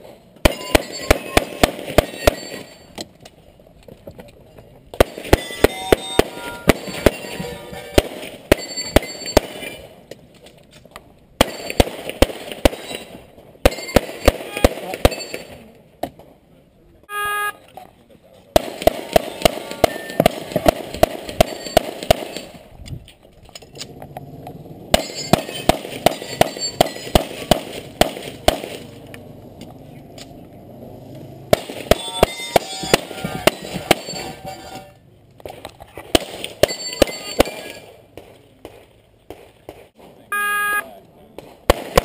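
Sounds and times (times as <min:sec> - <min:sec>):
rapid handgun fire: 0:00.5 - 0:02.6, 0:05.0 - 0:07.3, 0:07.9 - 0:09.8, 0:11.4 - 0:13.1, 0:13.7 - 0:15.5, 0:18.6 - 0:22.6, 0:24.9 - 0:29.0, 0:31.5 - 0:34.1, 0:36.1 - 0:39.9, 0:41.5 - 0:42.0.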